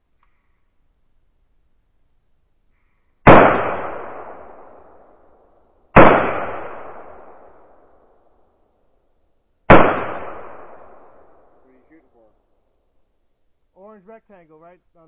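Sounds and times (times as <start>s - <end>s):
rifle shots with echo: 3.2s - 8.1s, 9.7s - 11.8s.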